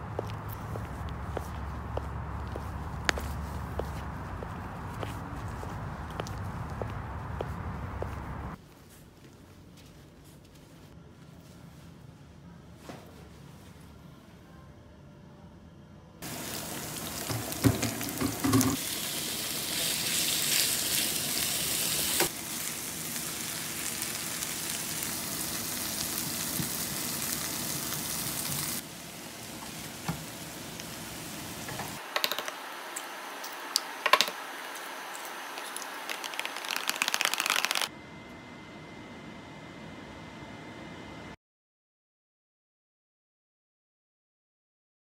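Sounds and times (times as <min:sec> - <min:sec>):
food sizzling in frying pan: 0:16.2 - 0:37.9
eggs beaten in plastic tub: 0:35.6 - 0:37.9.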